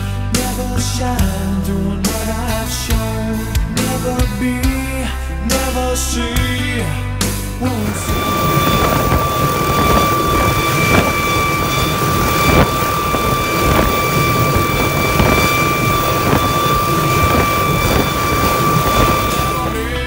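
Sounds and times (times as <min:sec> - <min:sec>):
helicopter turbine whine: 0:07.6 - 0:20.0
rotor wash rushing: 0:07.8 - 0:20.0
wind on microphone: 0:07.8 - 0:20.0.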